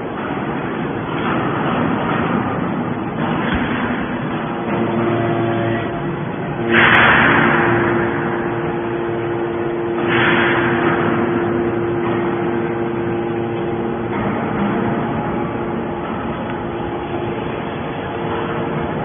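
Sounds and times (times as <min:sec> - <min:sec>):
hydraulic power unit humming: 0:00.0 - 0:19.0
loud hydraulic hissing: 0:06.6 - 0:14.1.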